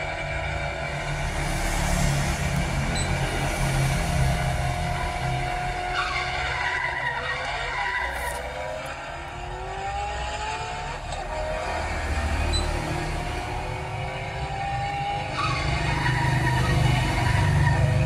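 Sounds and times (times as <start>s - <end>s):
car engine rumble: 0.0s - 18.0s
tyre squeals: 4.4s - 13.6s, 14.2s - 18.0s.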